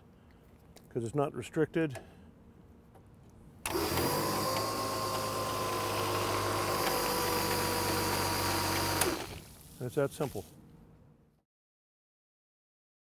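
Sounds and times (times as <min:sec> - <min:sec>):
electric pump running: 0:03.6 - 0:10.5
hose spraying water and foam: 0:07.4 - 0:10.5.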